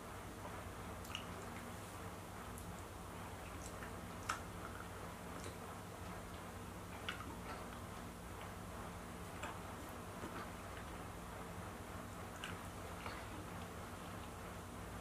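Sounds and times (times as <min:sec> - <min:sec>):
low steady hum: 0:00.0 - 0:15.0
small clicks of eating fruit: 0:01.0 - 0:01.7, 0:02.5 - 0:08.6, 0:09.3 - 0:11.0, 0:12.3 - 0:14.4.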